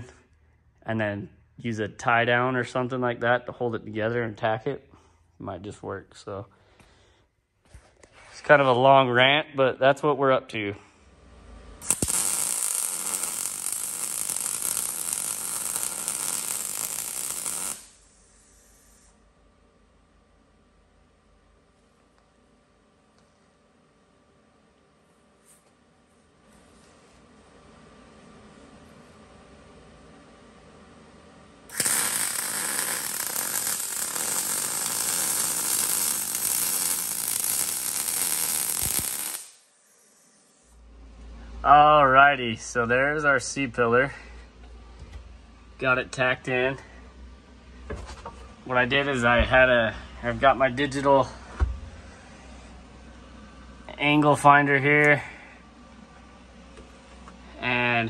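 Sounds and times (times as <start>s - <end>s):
welder sharp click: 11.8s - 18.0s, 31.7s - 39.6s
welding arc crackling hiss: 11.8s - 19.2s, 31.7s - 40.8s.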